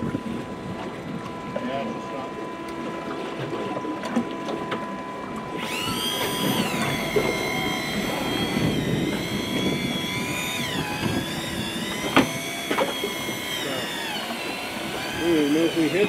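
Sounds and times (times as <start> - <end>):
water noise: 0.0 - 16.0
wind: 0.0 - 16.0
fishing reel motor whining: 4.7 - 16.0.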